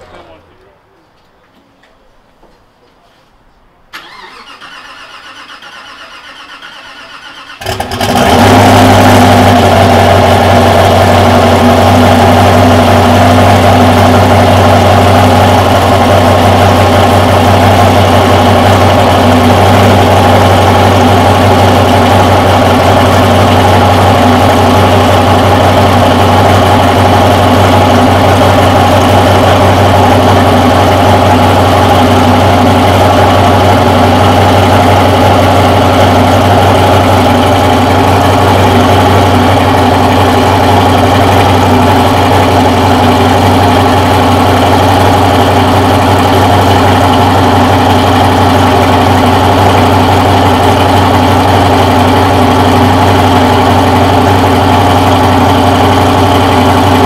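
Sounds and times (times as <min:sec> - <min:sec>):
starter cranking engine: 0:04.0 - 0:08.4
car engine idling loudly: 0:07.5 - 0:57.0.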